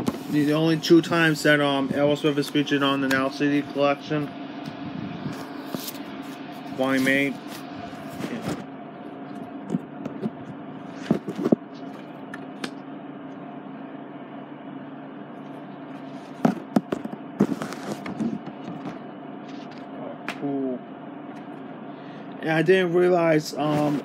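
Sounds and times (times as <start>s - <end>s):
steady hum: 0.0s - 24.0s.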